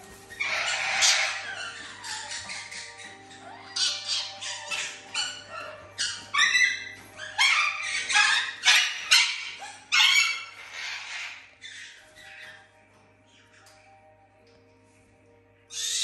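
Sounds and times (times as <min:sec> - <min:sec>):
background music: 0:00.0 - 0:16.0
small dogs barking and yipping: 0:00.3 - 0:12.4.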